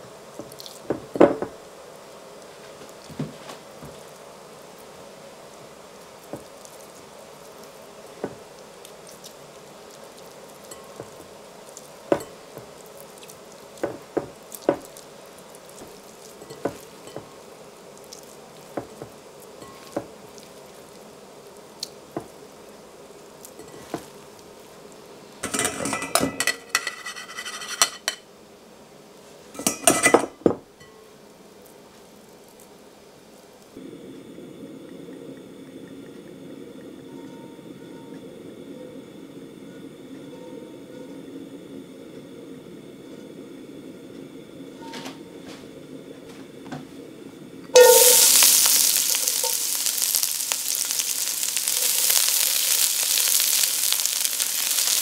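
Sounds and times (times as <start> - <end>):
bowl and strainer clattering: 47.8 - 49.6.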